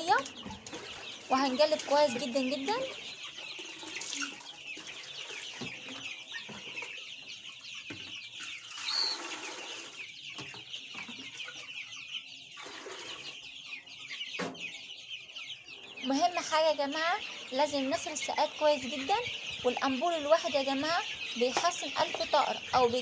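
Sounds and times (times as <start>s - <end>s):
chicks peeping: 0.0s - 23.0s
plastic buckets knocking: 21.4s - 23.0s.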